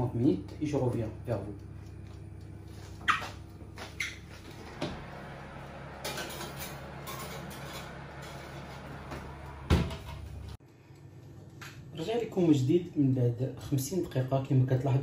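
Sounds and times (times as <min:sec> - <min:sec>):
glass dish scraping on metal rack: 0:06.0 - 0:09.0.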